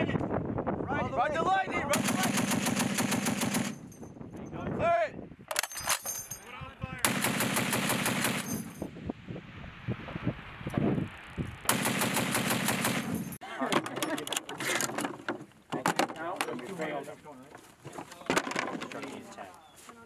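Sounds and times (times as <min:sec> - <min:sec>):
heavy machine gun bursts: 0:07.0 - 0:08.7, 0:11.7 - 0:13.4.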